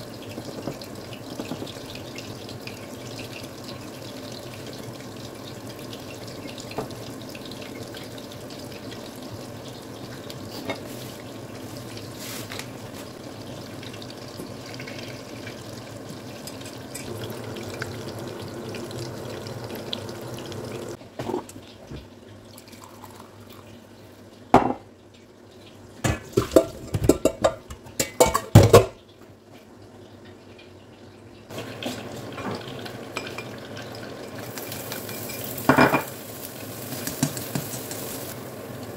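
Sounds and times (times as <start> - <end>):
hot oil sizzling: 0.0 - 38.9
cookware and utensils clinking: 16.3 - 17.9, 26.0 - 29.0, 31.5 - 36.3, 36.9 - 38.3.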